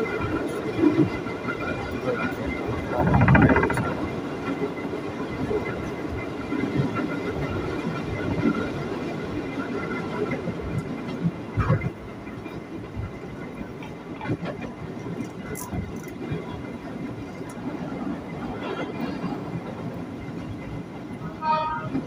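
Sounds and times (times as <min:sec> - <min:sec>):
train wheels rumbling on rails: 0:00.0 - 0:22.0
pitched tone: 0:02.9 - 0:04.0.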